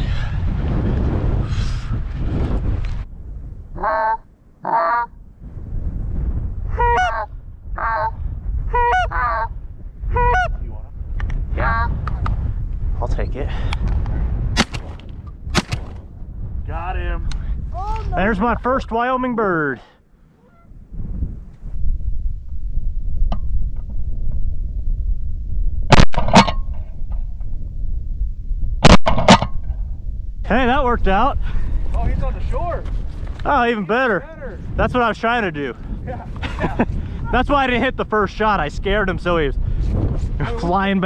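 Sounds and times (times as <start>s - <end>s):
steady low rumble: 0.0s - 41.0s
geese honking: 3.8s - 5.1s, 6.7s - 8.1s, 8.7s - 9.5s, 10.2s - 10.6s, 20.4s - 20.7s
shotgun shots: 14.6s - 16.0s, 28.8s - 29.5s.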